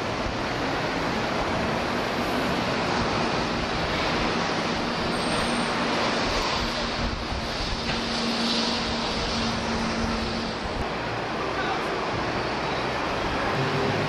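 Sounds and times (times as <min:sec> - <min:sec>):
rushing wind: 0:00.0 - 0:14.0
traffic noise: 0:00.0 - 0:14.0.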